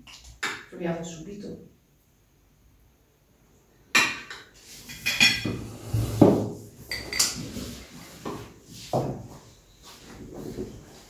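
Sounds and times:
cutlery clinking on plates: 4.0s - 5.7s, 6.9s - 7.5s.

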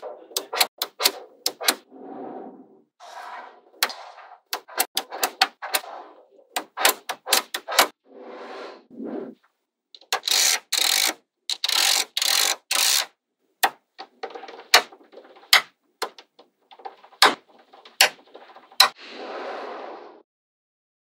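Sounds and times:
magnetic balls clattering: 13.6s - 19.0s.

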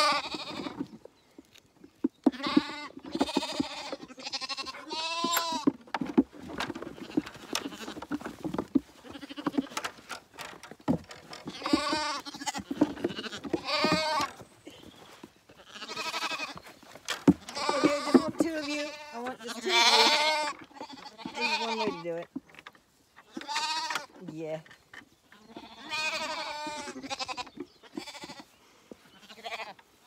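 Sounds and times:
lambs bleating: 0.0s - 0.8s, 2.3s - 5.7s, 7.0s - 8.1s, 9.0s - 9.8s, 11.5s - 14.4s, 15.6s - 16.6s, 17.4s - 22.2s, 23.3s - 24.1s, 25.4s - 28.5s, 29.2s - 29.8s.

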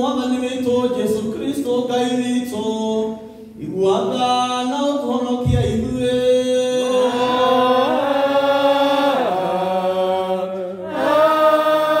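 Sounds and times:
voices singing liturgical chant: 6.2s - 12.0s.

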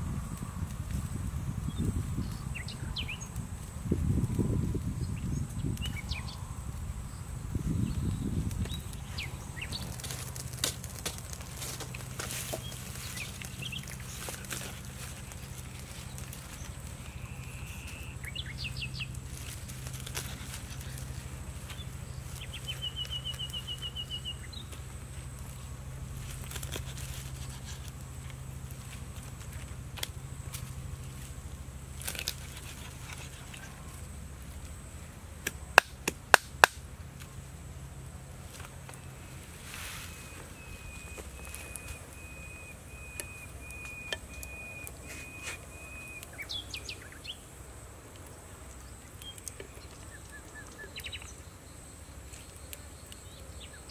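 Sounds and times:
low steady hum: 0.0s - 53.9s
birds chirping: 1.6s - 3.4s, 4.9s - 31.2s, 38.6s - 47.5s, 48.2s - 53.9s.

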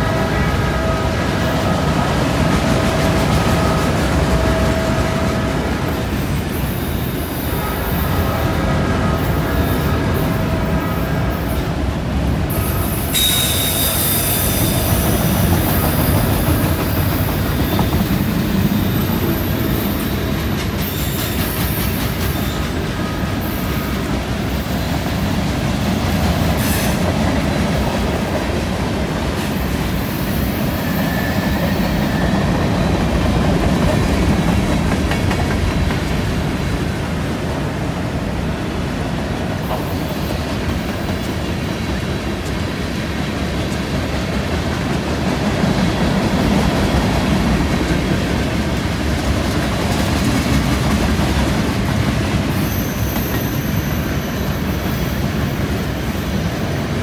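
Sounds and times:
freight train wheels rumbling: 0.0s - 57.0s
high-pitched wheel squeal: 12.5s - 16.5s, 30.4s - 32.6s, 52.5s - 56.6s.

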